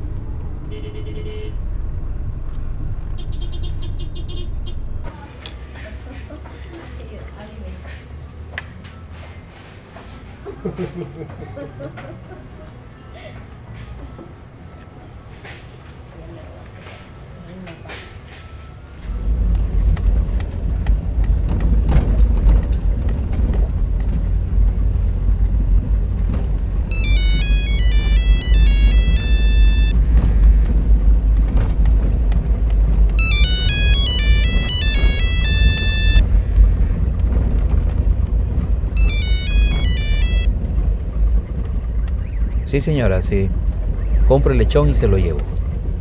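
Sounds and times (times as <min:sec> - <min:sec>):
car engine and tyres rumble: 0:00.0 - 0:46.0
mobile phone ringtone melody: 0:26.9 - 0:30.0, 0:33.2 - 0:36.2, 0:39.0 - 0:40.5.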